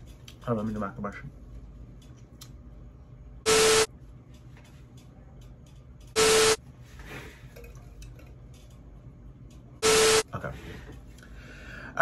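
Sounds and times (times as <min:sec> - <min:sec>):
static hiss with hum tone: 0:03.4 - 0:03.9.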